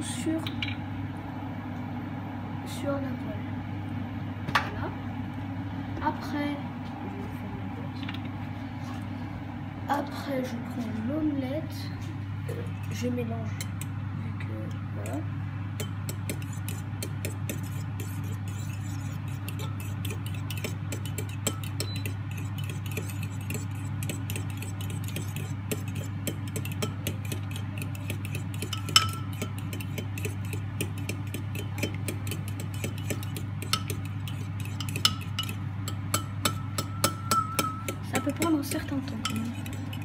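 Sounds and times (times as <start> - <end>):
steady low hum: 0.0 - 40.0
fork whisking eggs in bowl: 15.0 - 40.0
fork clinking against bowl: 15.8 - 38.5, 39.1 - 40.0.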